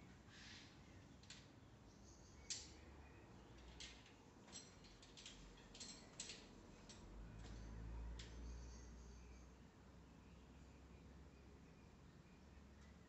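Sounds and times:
climbing gear clicks and clinks: 3.6 - 8.4.

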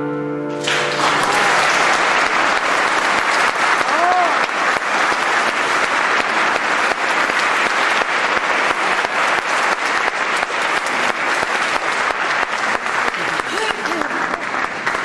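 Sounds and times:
audience applauding: 0.6 - 15.0.

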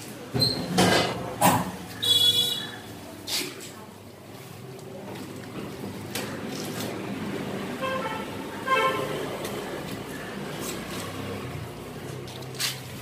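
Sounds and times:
vehicle horn toots: 2.0 - 2.8, 7.8 - 9.2.

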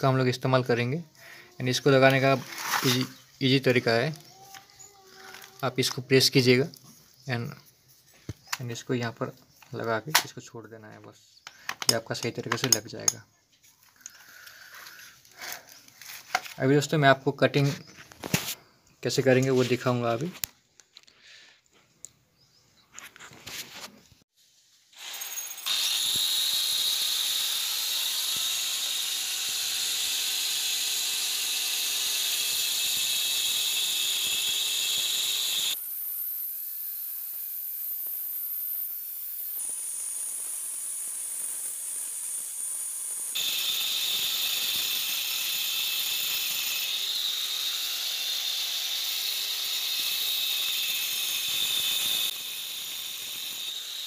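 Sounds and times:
angle grinder cutting brick wall: 0.0 - 7.6, 13.9 - 16.8, 24.6 - 54.0.

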